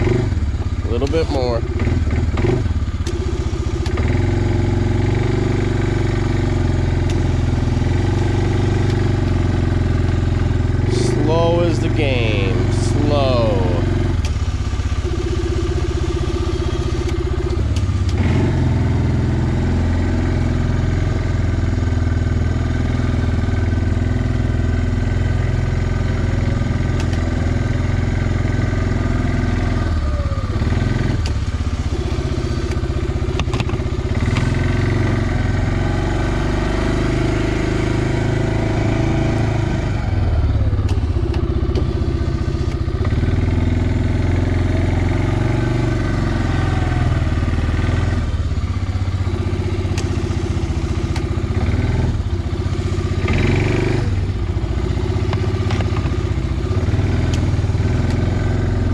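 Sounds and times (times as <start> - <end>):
atv engine running at low speed: 0.0 - 58.9.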